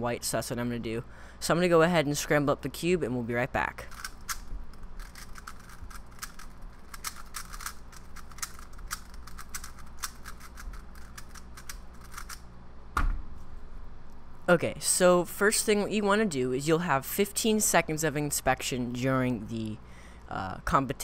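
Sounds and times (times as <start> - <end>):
plastic cube clicks: 5.0 - 12.4
thump: 13.0 - 13.3.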